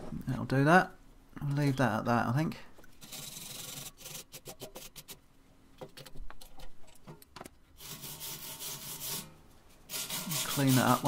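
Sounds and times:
wire brush scrubbing metal: 7.8 - 11.0.

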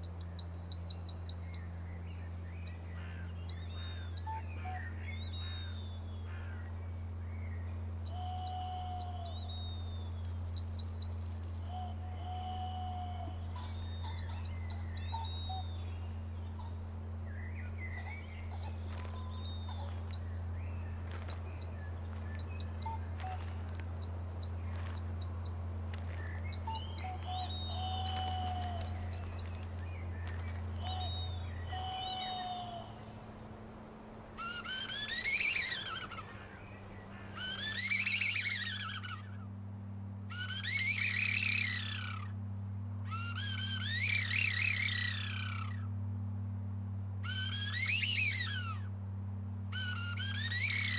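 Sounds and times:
low steady drone: 0.0 - 50.9
wooden bird whistle warbling: 8.1 - 16.0, 22.2 - 33.1, 34.4 - 36.2, 37.4 - 39.2, 40.3 - 42.3, 43.1 - 45.8, 47.2 - 48.9, 49.7 - 50.9
bird chirps and whistles: 8.1 - 16.1, 17.4 - 33.0, 34.4 - 36.2, 37.4 - 39.1, 40.3 - 42.2, 43.1 - 45.7, 47.2 - 48.8, 49.7 - 50.9.

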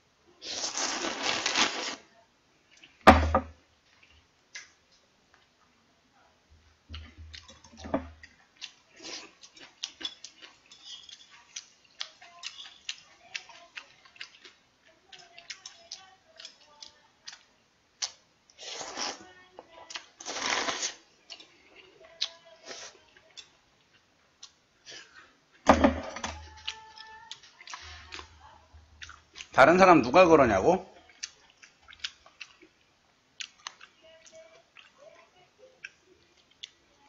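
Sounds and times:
wet chewing clicks: 6.9 - 19.1, 29.0 - 29.6, 31.0 - 35.0, 35.8 - 36.8.

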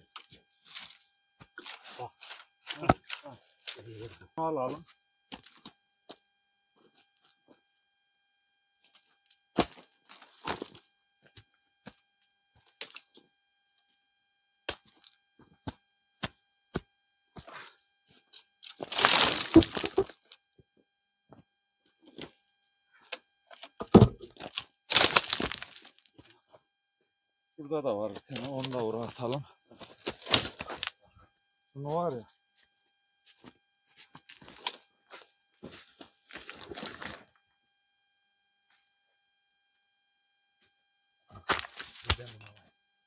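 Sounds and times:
dry twigs snapping: 18.7 - 20.0, 24.9 - 25.9
footsteps on stony ground: 18.7 - 20.2, 23.6 - 26.4, 28.1 - 31.0, 33.3 - 37.2, 41.3 - 42.4.

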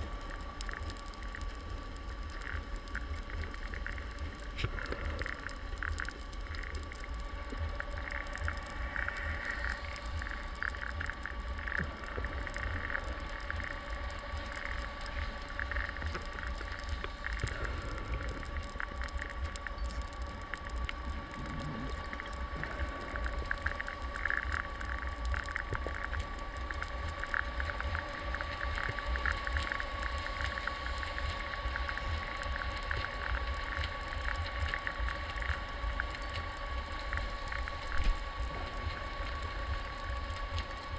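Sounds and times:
clicks and crackles: 0.0 - 40.9
underwater low rumble: 0.0 - 40.9.

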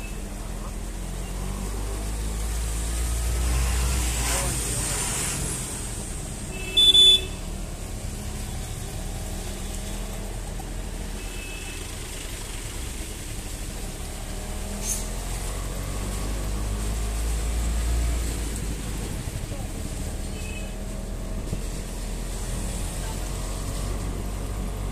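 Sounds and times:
water splashing under vehicle: 0.0 - 24.9
vehicle horn beep: 6.5 - 7.4, 11.2 - 11.8, 20.3 - 20.8
vehicle engine running: 7.3 - 24.9.

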